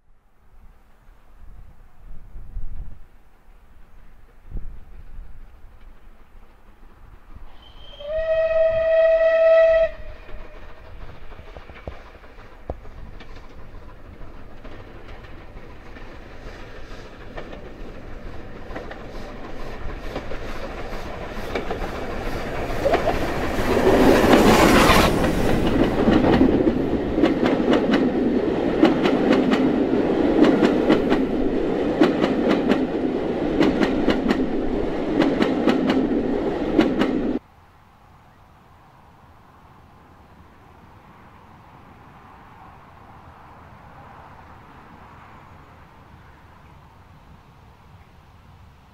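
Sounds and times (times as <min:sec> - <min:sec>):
steam train passing: 0:00.4 - 0:48.9
wheels clicking over rail joints: 0:09.8 - 0:37.4.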